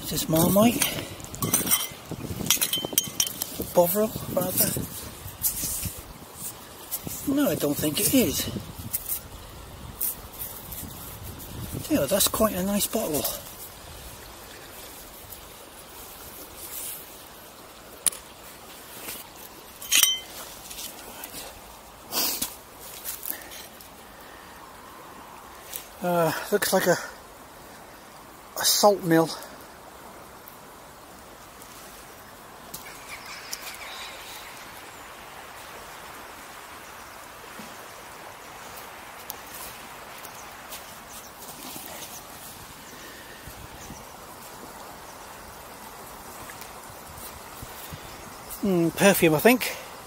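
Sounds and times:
river water hiss: 0:00.0 - 0:50.0
glass bottles clinking on stones: 0:00.7 - 0:03.6, 0:19.8 - 0:20.4
bird call: 0:32.8 - 0:34.9.

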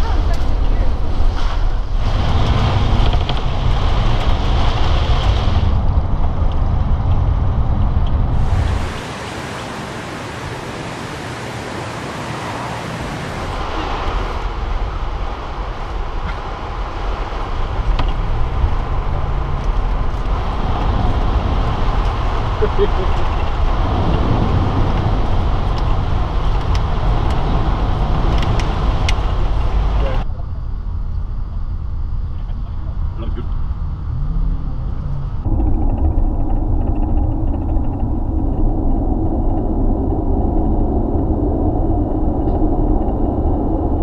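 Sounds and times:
low road rumble: 0:00.0 - 0:44.0
tyre hiss on wet road: 0:08.4 - 0:15.6.

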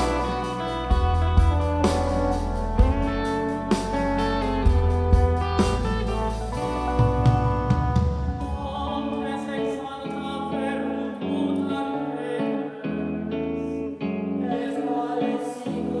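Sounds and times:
pop-rock band playing: 0:00.0 - 0:11.0
electric guitar: 0:00.0 - 0:16.0.

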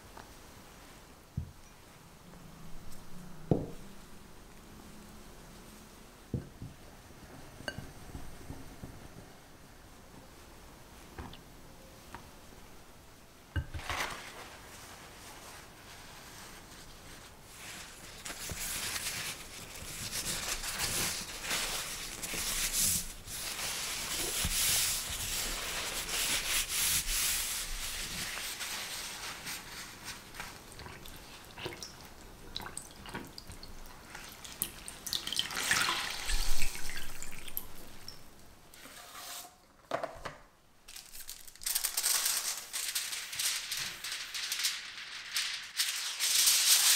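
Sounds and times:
paper towels rustling: 0:13.7 - 0:32.3, 0:40.9 - 0:46.9
water dripping: 0:30.7 - 0:38.5.

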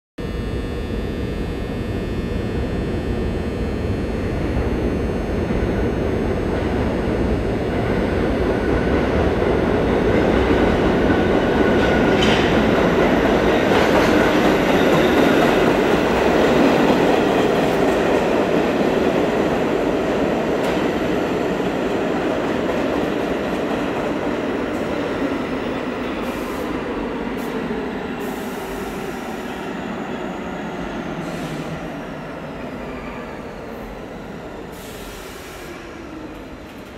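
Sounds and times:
high whine: 0:00.2 - 0:09.8
subway train rumbling: 0:00.2 - 0:36.9.

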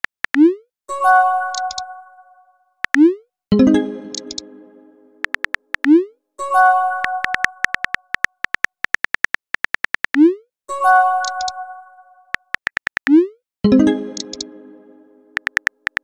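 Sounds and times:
virtual keyboard typing clicks: 0:01.5 - 0:01.9, 0:02.8 - 0:03.1, 0:04.1 - 0:04.5, 0:05.2 - 0:06.1, 0:07.0 - 0:10.3, 0:11.2 - 0:11.6, 0:12.3 - 0:13.3, 0:14.0 - 0:14.6, 0:15.4 - 0:16.0.

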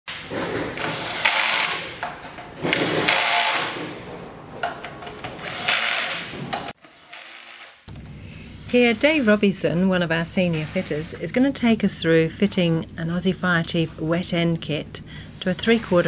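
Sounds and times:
cordless drill running: 0:00.8 - 0:01.9, 0:05.4 - 0:07.8.

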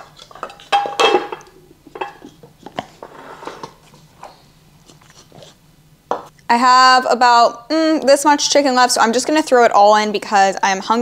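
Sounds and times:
dishware clinking: 0:00.3 - 0:02.4.

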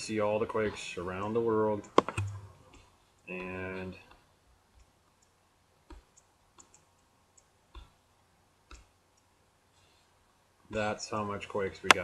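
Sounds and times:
computer mouse clicking: 0:01.8 - 0:03.3, 0:04.1 - 0:08.0, 0:08.6 - 0:09.3.

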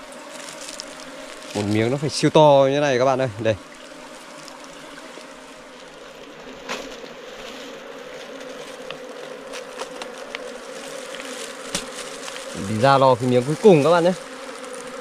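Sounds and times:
bees buzzing densely: 0:00.0 - 0:15.0.

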